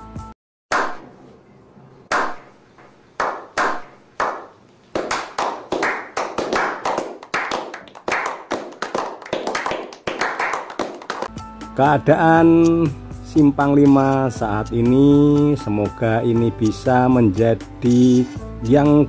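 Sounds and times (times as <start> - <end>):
group clapping: 3.2 - 11.3.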